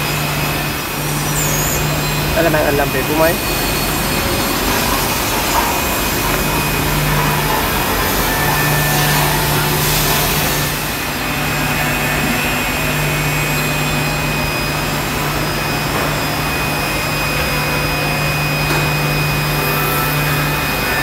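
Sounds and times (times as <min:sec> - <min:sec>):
dust extraction air rush: 0:00.0 - 0:17.3
panel saw humming and whining: 0:00.0 - 0:21.0.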